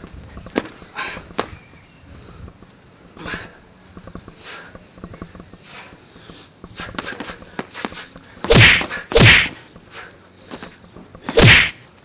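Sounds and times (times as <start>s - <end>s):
boxing glove punches: 8.4s - 9.6s, 11.3s - 11.8s.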